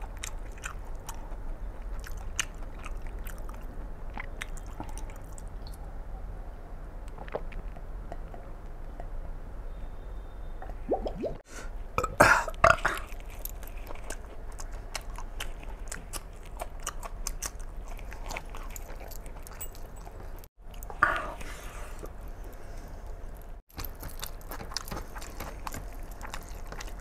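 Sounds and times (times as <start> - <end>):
chewing and biting food: 0.0 - 5.8, 12.9 - 27.0.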